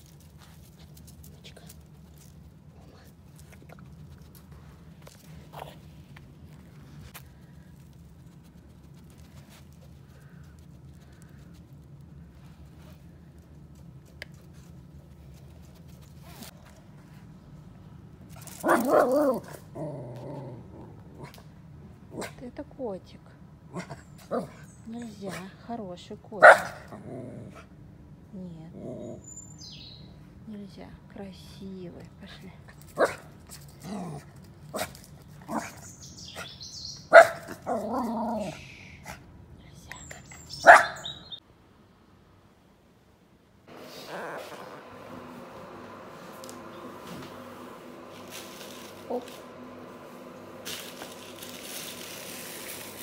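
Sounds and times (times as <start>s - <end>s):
puppy barking: 18.6s - 19.5s, 26.4s - 26.9s, 33.0s - 33.3s, 36.4s - 38.5s, 40.5s - 41.4s.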